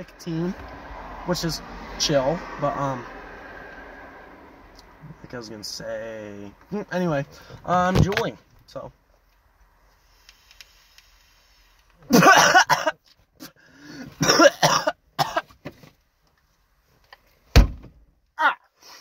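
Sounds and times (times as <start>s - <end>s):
man coughing hard: 12.1s - 13.0s, 14.1s - 15.5s
loud thud: 17.5s - 18.0s.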